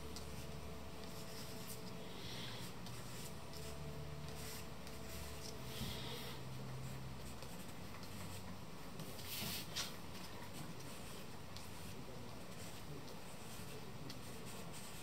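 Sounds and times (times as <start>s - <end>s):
faint low hum: 0.0s - 15.0s
charcoal scratching on paper: 12.6s - 15.0s.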